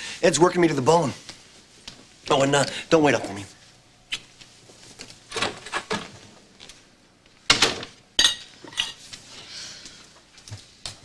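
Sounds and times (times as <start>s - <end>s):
dishes and cutlery clattering: 8.2s - 9.0s.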